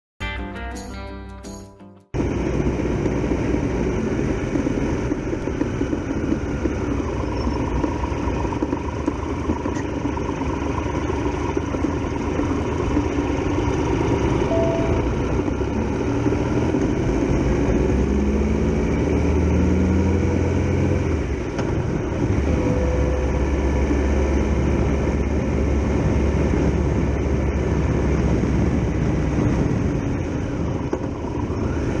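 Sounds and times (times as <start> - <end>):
motorcycle engine running: 2.2 - 19.5
wind and road rush: 2.2 - 32.0.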